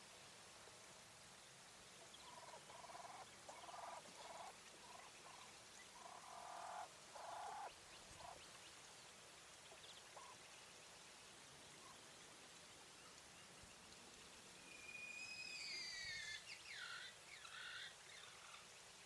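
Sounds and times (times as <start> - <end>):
quail calling: 2.2 - 8.4.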